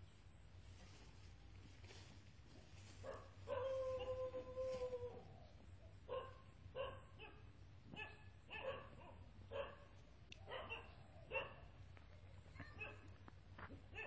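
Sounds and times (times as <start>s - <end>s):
dog barking faintly: 10.5s - 11.8s, 12.4s - 13.2s.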